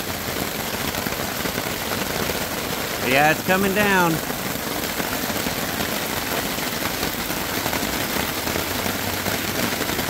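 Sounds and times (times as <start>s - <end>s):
heavy rain on a tarp: 0.0s - 10.0s.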